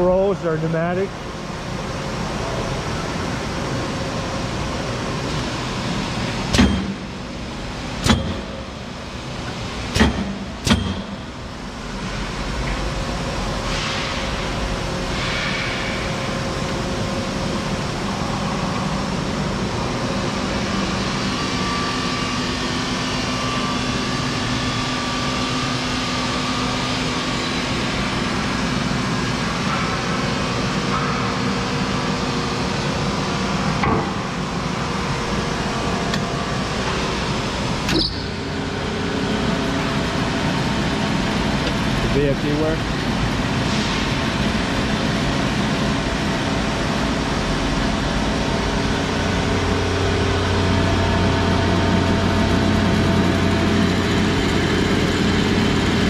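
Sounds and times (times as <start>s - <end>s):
machine motor hum: 0.0s - 56.0s
pneumatic rolls clunking: 5.3s - 11.5s, 36.0s - 38.6s.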